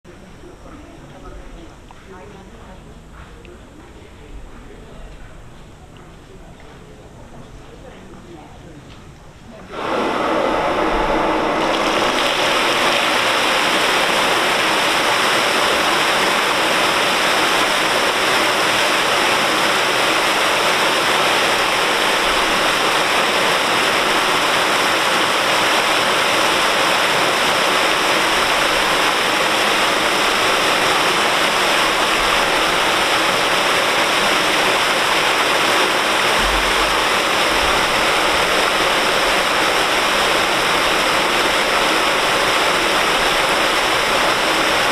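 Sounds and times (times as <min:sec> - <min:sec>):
water pouring into river: 0:09.7 - 0:44.9.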